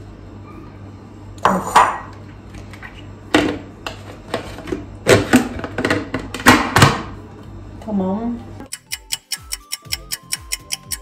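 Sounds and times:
vegetables clinking in chopper bowl: 0:08.8 - 0:11.0.

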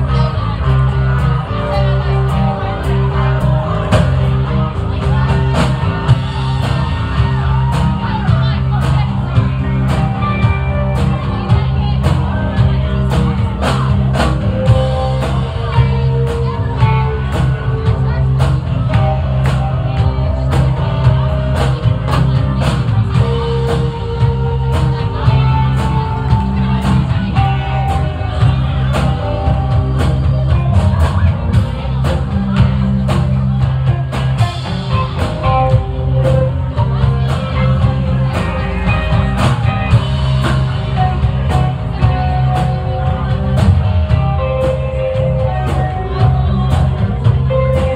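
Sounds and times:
drums keeping a steady beat: 0:00.0 - 0:47.9
electric guitar: 0:00.0 - 0:47.9.

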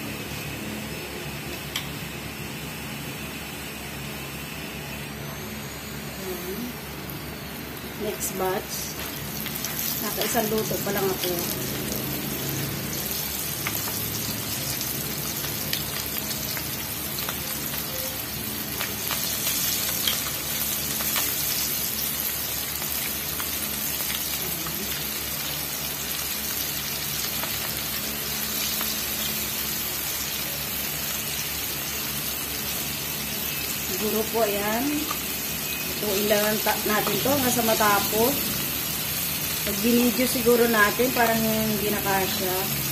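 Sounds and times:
chicken deep-frying in oil: 0:06.9 - 0:42.9
oil popping and crackling: 0:09.0 - 0:29.8.

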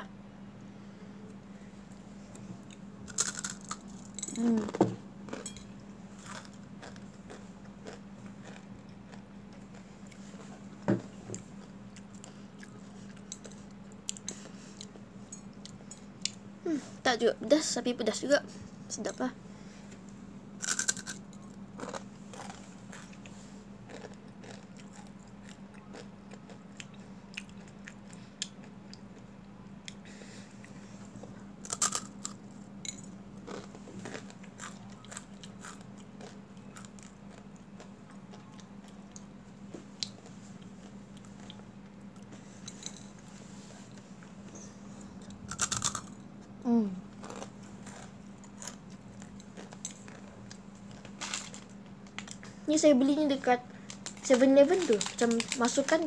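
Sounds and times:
crunching and chewing snack: 0:02.3 - 0:10.7, 0:20.6 - 0:43.2, 0:43.9 - 0:46.3, 0:47.1 - 0:52.7, 0:53.7 - 0:56.0.

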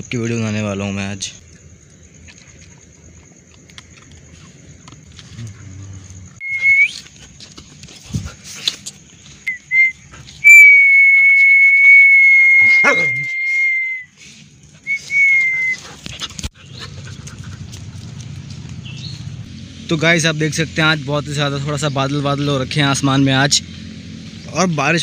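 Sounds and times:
person whistling: 0:06.4 - 0:07.0, 0:09.5 - 0:14.2, 0:14.8 - 0:15.8
dog yelping: 0:12.6 - 0:13.3.

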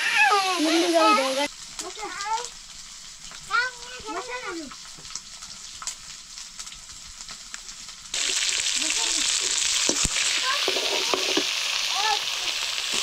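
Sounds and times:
food sizzling in hot oil: 0:00.0 - 0:13.0
utensil knocking: 0:09.8 - 0:11.5.

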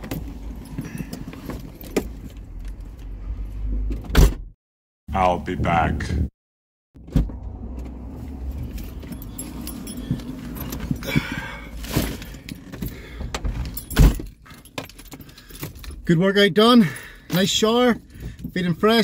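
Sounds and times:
keys jangling: 0:08.7 - 0:11.3, 0:12.5 - 0:16.0.

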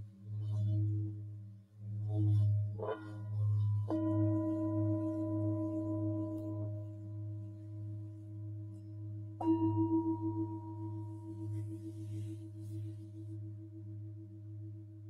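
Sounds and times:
pulsing low hum: 0:00.0 - 0:15.0
singing bowls struck and ringing: 0:09.4 - 0:12.2.

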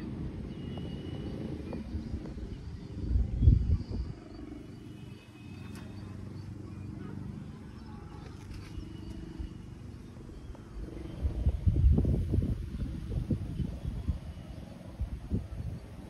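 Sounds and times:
wind buffeting microphone: 0:00.0 - 0:05.0, 0:08.8 - 0:16.0.

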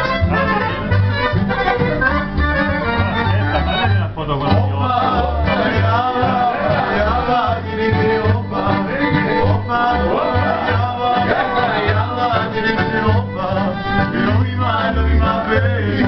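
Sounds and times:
accordion melody: 0:00.0 - 0:16.0
acoustic guitar: 0:00.0 - 0:16.0
plucked double bass: 0:00.0 - 0:16.0.

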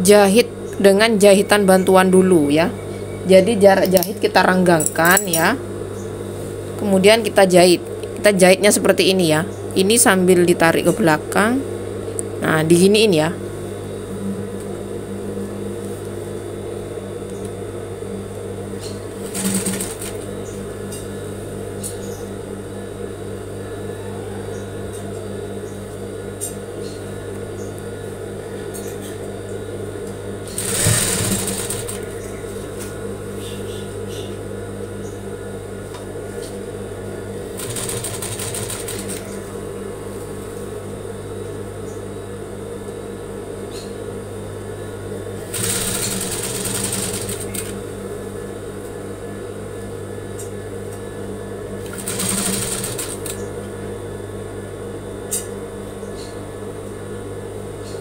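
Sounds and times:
sewing machine running: 0:19.2 - 0:20.2, 0:30.6 - 0:32.2, 0:37.5 - 0:39.3, 0:45.5 - 0:47.8, 0:51.8 - 0:53.4.

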